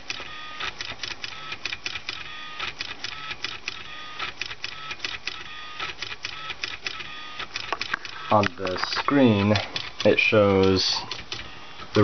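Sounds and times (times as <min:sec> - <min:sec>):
pen clicking and tapping on paper: 0:07.6 - 0:08.8.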